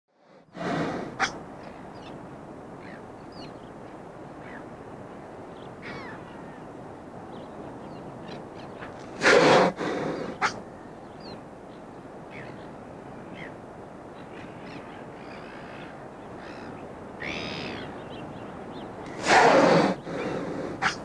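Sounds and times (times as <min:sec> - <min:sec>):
background noise: 0:00.1 - 0:21.0
whale blowing through blowhole: 0:00.4 - 0:01.3, 0:09.2 - 0:10.4, 0:19.2 - 0:20.9.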